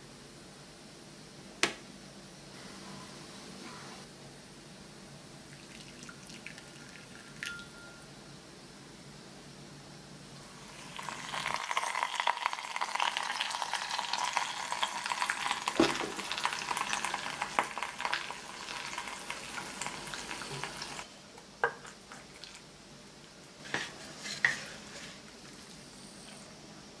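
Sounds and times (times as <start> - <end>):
bacon and eggs sizzling: 10.4 - 22.7.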